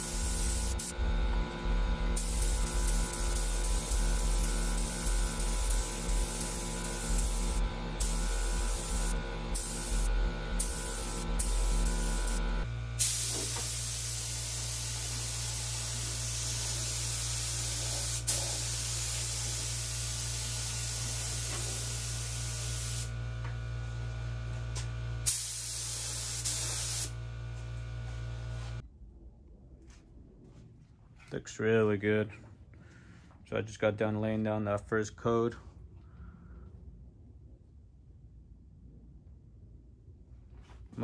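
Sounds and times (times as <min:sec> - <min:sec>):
paint spray gun hissing: 0:00.0 - 0:01.1, 0:02.1 - 0:23.2, 0:25.2 - 0:27.2
steady low hum: 0:00.0 - 0:41.0.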